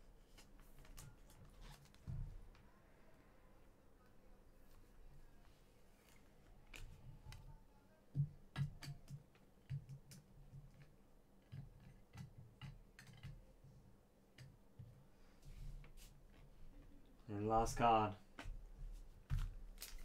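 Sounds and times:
cards clicking and tapping: 8.2s - 13.4s.

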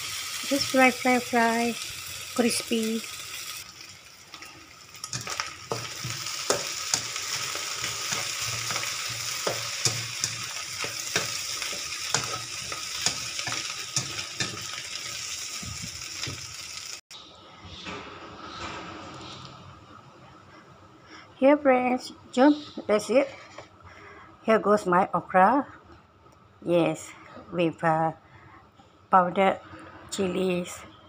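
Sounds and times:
food sizzling in a wok: 0.0s - 17.0s
spatula scraping a pan: 5.1s - 15.0s.

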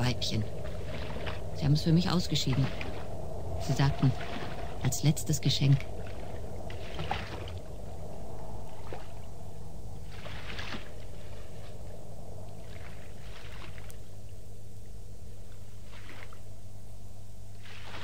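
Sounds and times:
water lapping against boat hull: 0.0s - 8.0s, 8.6s - 9.4s, 10.0s - 11.9s, 12.5s - 14.2s, 15.4s - 16.5s, 17.5s - 18.0s
steady low rumble: 0.0s - 17.7s.

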